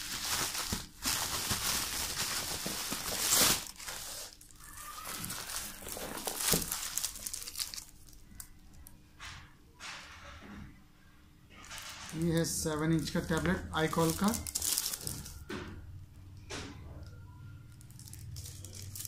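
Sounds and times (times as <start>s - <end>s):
bubble wrap crinkling: 0.0s - 8.9s, 11.6s - 15.5s, 17.7s - 19.0s.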